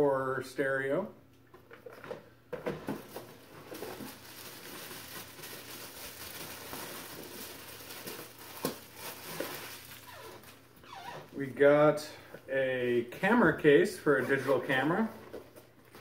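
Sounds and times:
packaging rustling and crinkling: 1.7 - 11.4, 14.3 - 16.0.

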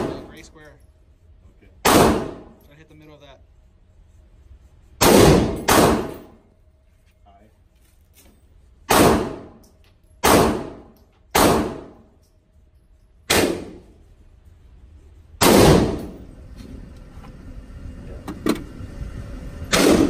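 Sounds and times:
gunshots echoing indoors: 1.8 - 2.6, 5.0 - 6.4, 8.8 - 9.6, 10.2 - 12.2, 13.2 - 14.0, 15.4 - 16.3, 19.7 - 20.0.

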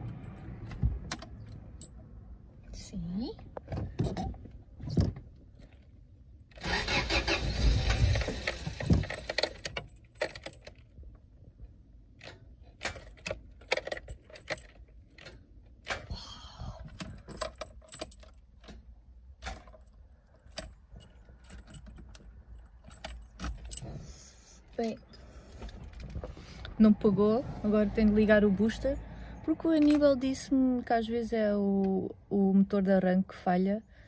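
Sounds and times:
starter cranking engine: 6.5 - 9.8
keys jingling: 17.0 - 18.7, 19.4 - 26.4.

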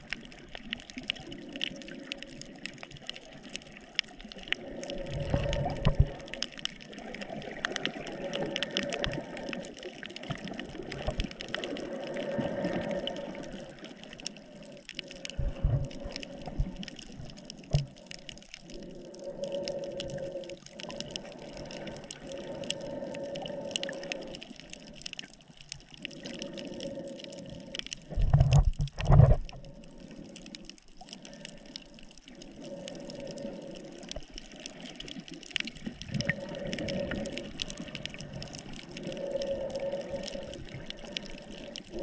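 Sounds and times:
faint clicks: 0.0 - 42.0
muffled underwater water noise: 0.0 - 42.0.

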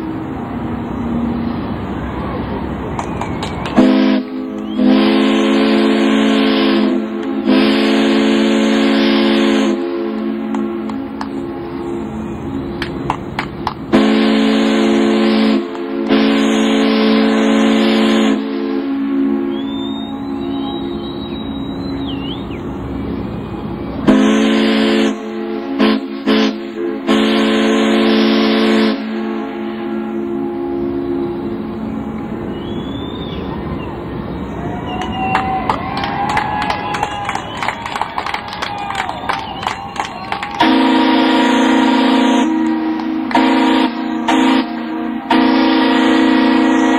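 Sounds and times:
steam whistle blasts: 3.7 - 12.8, 13.9 - 22.6, 24.0 - 33.5, 39.1 - 46.9.

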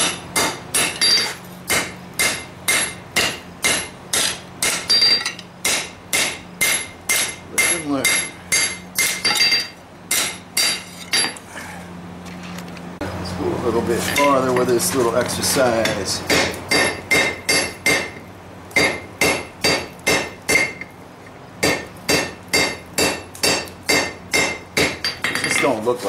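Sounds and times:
hammer beating steel on anvil: 0.0 - 11.4, 15.8 - 18.2, 18.8 - 20.9, 21.6 - 25.7.

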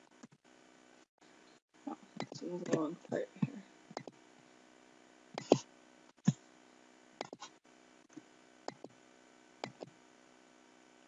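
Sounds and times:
computer mouse clicks: 2.2 - 2.8, 3.9 - 4.2, 7.2 - 7.5, 8.7 - 9.0, 9.6 - 10.0.

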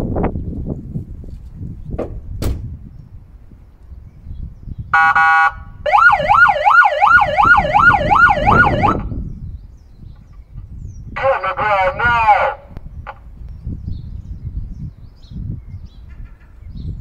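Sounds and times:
siren horn blast: 5.0 - 9.1
siren yelp tone: 5.0 - 9.1.

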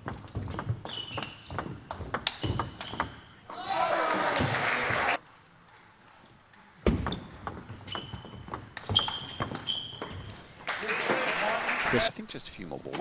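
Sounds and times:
crowd cheering and clapping: 3.6 - 5.2, 10.6 - 12.1.

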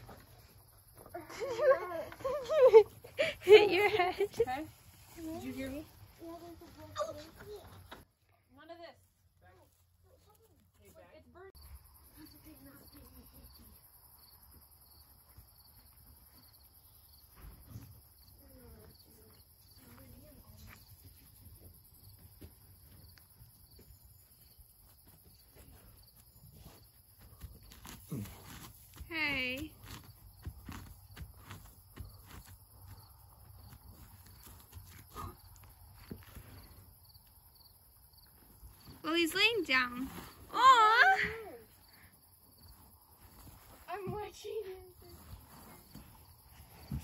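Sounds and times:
crickets chirping: 0.0 - 47.0
high insect hum: 10.9 - 47.0
soft hoof steps: 14.4 - 40.5, 41.7 - 47.0
donkey tearing grass: 26.6 - 29.1, 29.7 - 35.6.

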